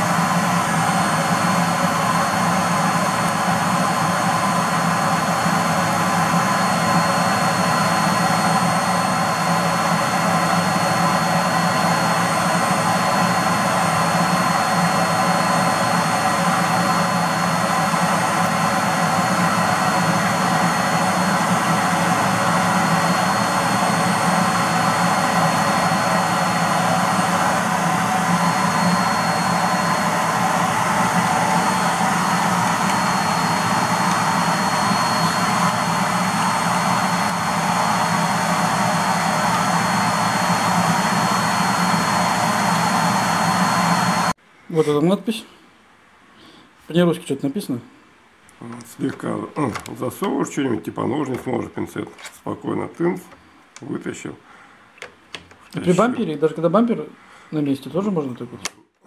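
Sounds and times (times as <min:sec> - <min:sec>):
vacuum cleaner running: 0:00.0 - 0:44.4.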